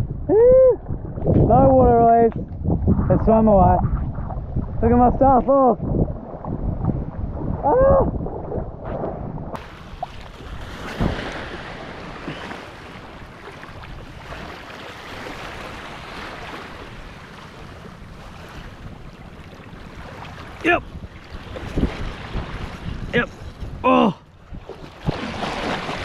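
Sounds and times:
wind on microphone: 0.0s - 26.0s
small waves breaking: 9.6s - 26.0s.

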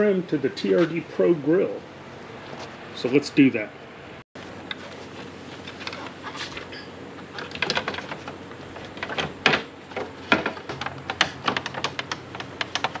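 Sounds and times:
plastic parts clicking and knocking: 7.3s - 13.0s.

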